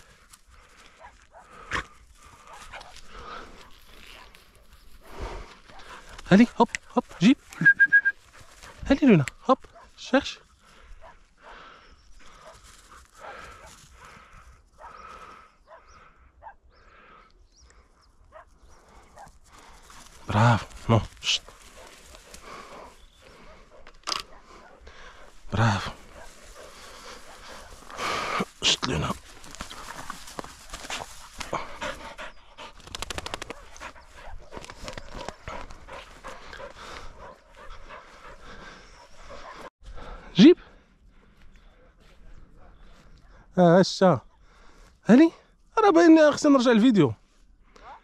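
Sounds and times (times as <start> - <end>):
dog breathing hard and sniffing: 0.0 - 7.5, 10.5 - 16.5, 18.4 - 39.7
short high chirps: 7.6 - 8.2
dog panting hard: 21.4 - 28.4, 30.7 - 39.7.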